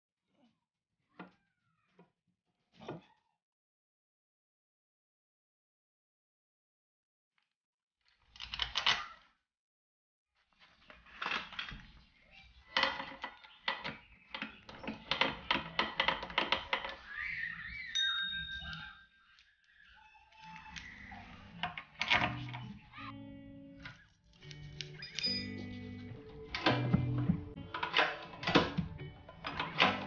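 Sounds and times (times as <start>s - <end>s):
ringing metal tings: 17.8s - 19.4s, 25.0s - 25.7s.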